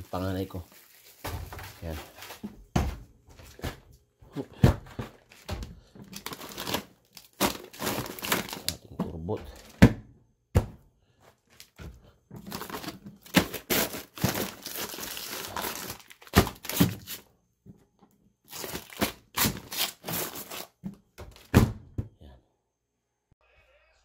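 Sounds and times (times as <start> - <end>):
plastic bags crinkling: 0.0 - 2.4, 5.1 - 8.9, 12.4 - 17.2, 18.5 - 20.7.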